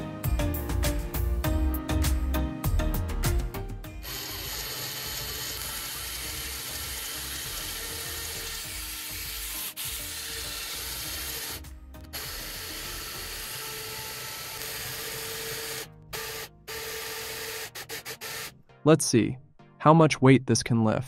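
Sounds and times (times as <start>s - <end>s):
gear motors whirring: 4.0s - 18.5s.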